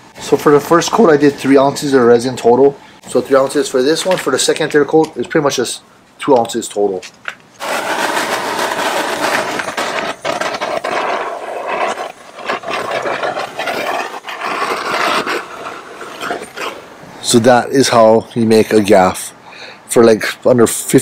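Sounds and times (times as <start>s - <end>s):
torch flame hissing: 7.6s - 17.4s.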